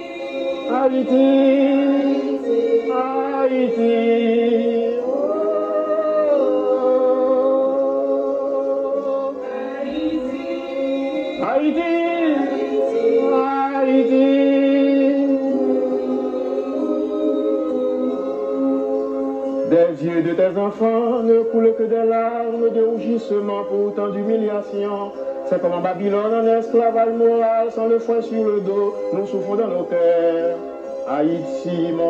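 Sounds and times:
women's choir singing: 0.0 - 19.6.

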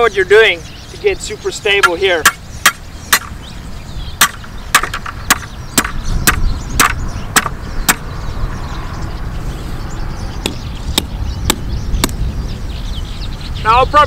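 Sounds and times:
hammer striking wood: 2.2 - 3.3, 4.2 - 8.0.

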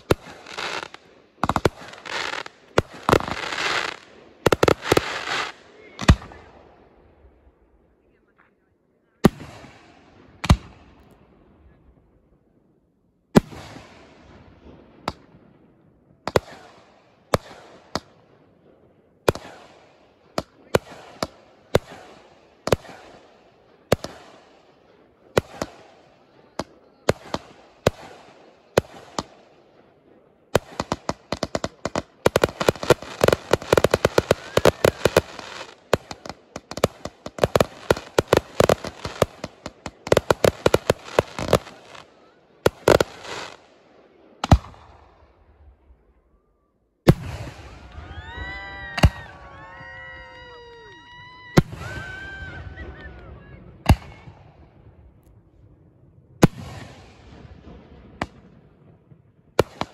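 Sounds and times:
firework bangs echoing: 0.0 - 6.5, 16.2 - 18.2, 19.2 - 43.7, 44.4 - 45.0, 47.0 - 47.8, 56.4 - 59.9
rapid firework barrage: 0.0 - 6.6, 16.2 - 18.2, 19.2 - 29.8, 30.4 - 43.8, 47.1 - 49.8, 56.4 - 59.9.

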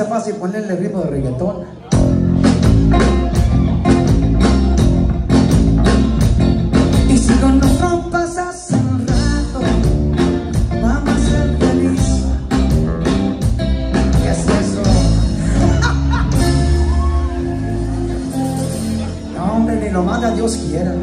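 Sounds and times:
bass guitar: 1.1 - 21.0
steady drum beat: 1.9 - 18.6
electric guitar: 1.9 - 21.0.

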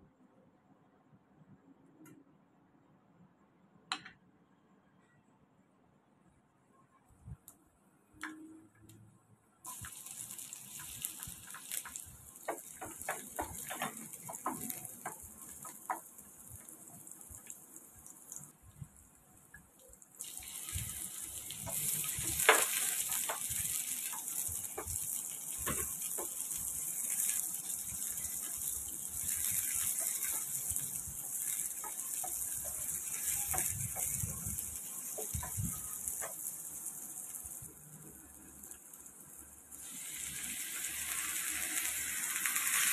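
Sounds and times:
onions sizzling in butter: 9.7 - 42.9.

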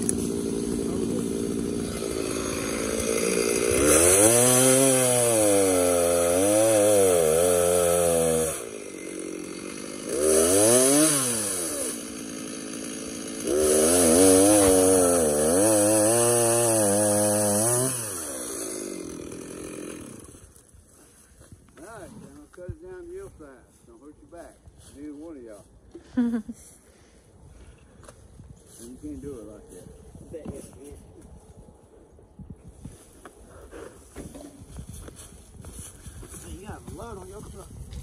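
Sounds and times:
chainsaw revving and idling: 0.0 - 20.7.

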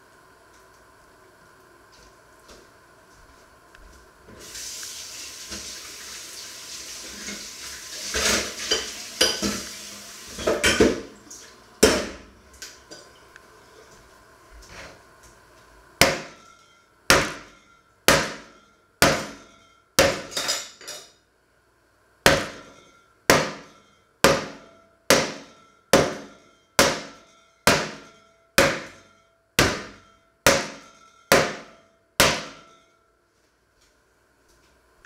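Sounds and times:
meat pounded on wooden board: 16.0 - 16.4, 17.1 - 20.3, 22.3 - 22.7, 23.3 - 29.0, 29.6 - 32.8.

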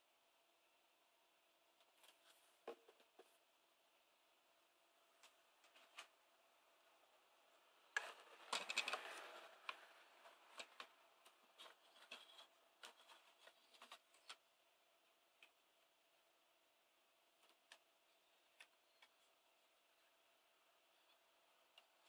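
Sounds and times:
plastic housing clattering: 8.3 - 9.8.

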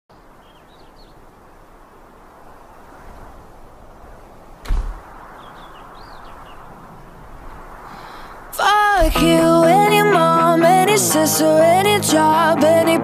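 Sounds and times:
bird chirps: 0.1 - 1.2, 5.3 - 6.7
steady outdoor hiss: 0.1 - 13.0
loud thump: 4.6 - 5.0.

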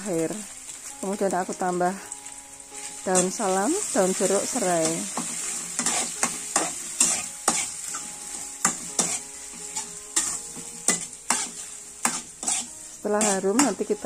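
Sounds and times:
oil sizzling: 0.0 - 14.0
spatula scraping and tapping pan: 4.8 - 14.0.

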